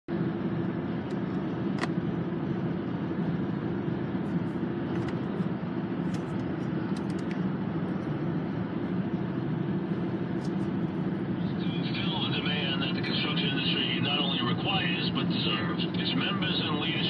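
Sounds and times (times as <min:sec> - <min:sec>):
car engine and tyre noise: 0:00.1 - 0:15.6
constant low hum: 0:00.1 - 0:17.0.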